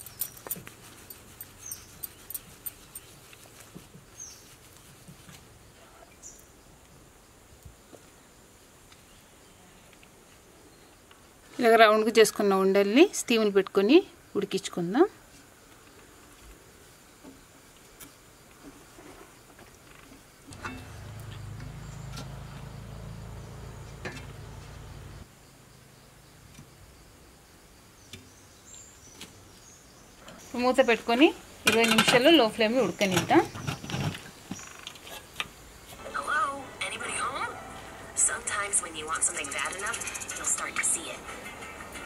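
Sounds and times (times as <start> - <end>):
faint outdoor ambience: 0.0 - 42.0.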